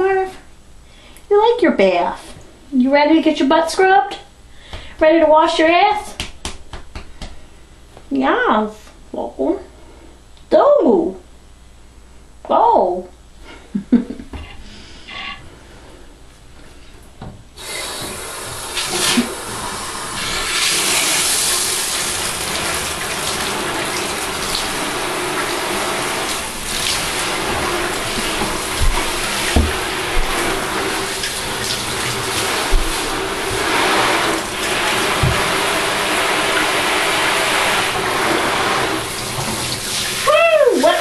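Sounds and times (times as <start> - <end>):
shower water splashing into bathtub: 17.6 - 41.0
soft low bumps in tub: 27.5 - 30.6.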